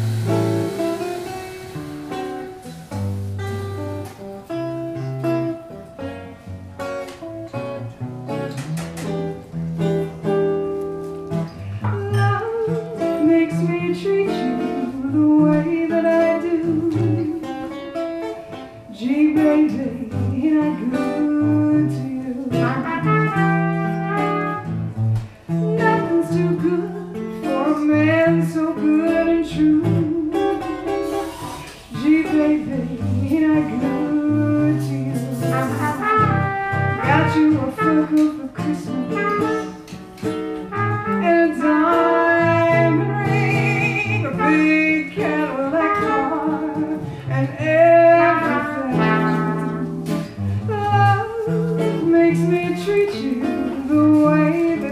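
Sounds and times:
archtop guitar: 0:00.0 - 0:54.9
woman singing: 0:11.8 - 0:24.7, 0:25.5 - 0:40.0, 0:40.7 - 0:54.9
trumpet: 0:20.9 - 0:28.4, 0:33.5 - 0:54.9.

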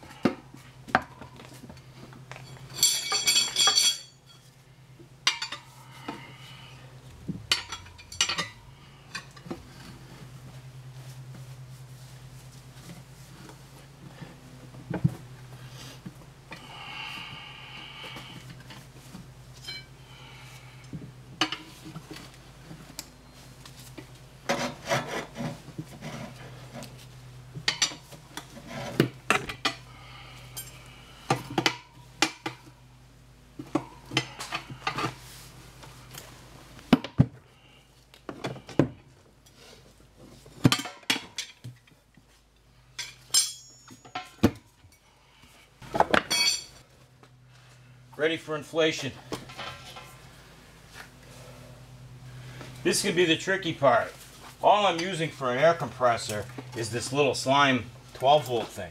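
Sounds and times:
tire levers clinking on wheel rim: 0:02.2 - 0:04.5, 0:07.4 - 0:09.9, 0:19.5 - 0:20.0, 0:43.0 - 0:45.0, 0:45.8 - 0:46.8.

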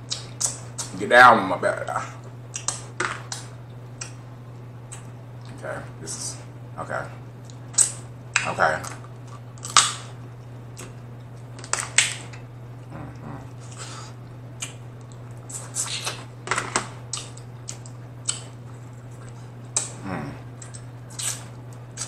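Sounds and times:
steady low hum: 0:00.0 - 0:22.0
wet mouth eating sounds: 0:07.4 - 0:16.3, 0:17.1 - 0:22.0.

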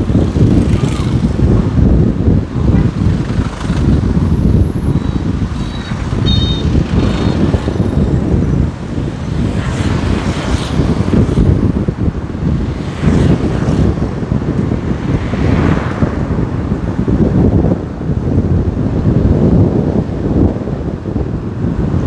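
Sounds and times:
traffic rumble of engines and tyres: 0:00.0 - 0:22.0
vehicles passing: 0:00.0 - 0:22.0.

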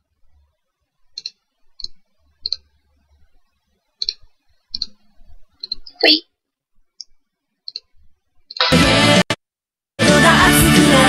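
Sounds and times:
computer mouse clicks: 0:01.1 - 0:02.7, 0:04.0 - 0:05.0, 0:05.6 - 0:06.1, 0:07.0 - 0:08.6.

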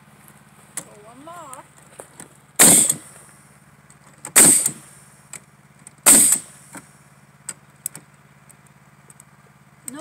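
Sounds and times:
exhaust air hiss: 0:02.3 - 0:07.9
nail gun firing bang: 0:02.6 - 0:03.0, 0:04.3 - 0:04.8, 0:06.1 - 0:06.6.

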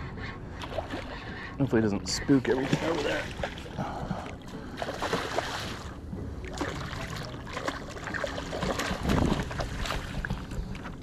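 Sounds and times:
water splashing: 0:02.4 - 0:11.0.

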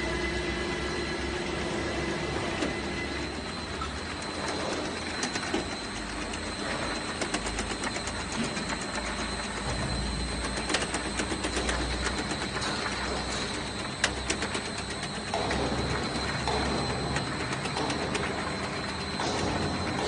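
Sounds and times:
machine hum with high whine: 0:00.0 - 0:20.0
machine clicks and knocks: 0:04.2 - 0:20.0.

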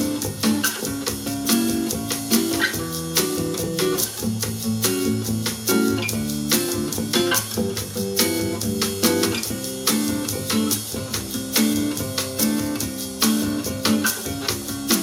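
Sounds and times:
guitar music through speakers: 0:00.0 - 0:15.0.

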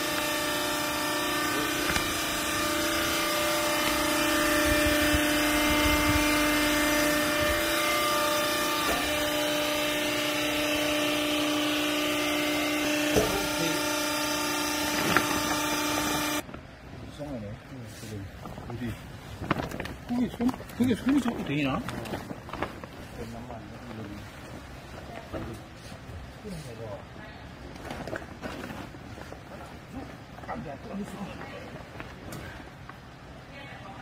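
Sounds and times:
hydraulic motor and pump humming: 0:00.0 - 0:26.9.

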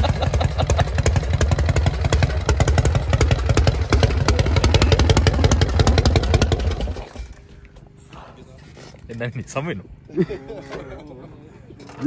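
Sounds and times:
motorcycle engine idling: 0:00.0 - 0:07.4.

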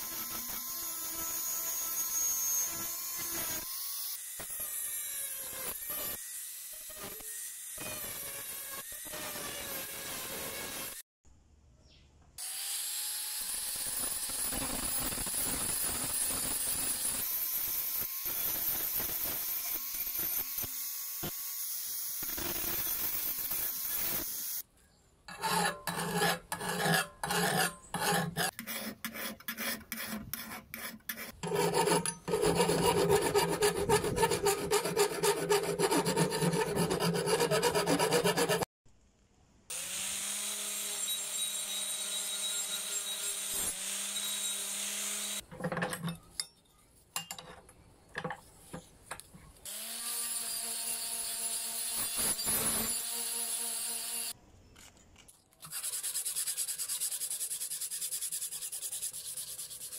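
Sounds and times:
angle grinder sanding: 0:25.3 - 0:38.7, 0:55.7 - 0:59.9
hand file scraping metal: 0:25.3 - 0:38.7, 0:55.6 - 0:59.9.

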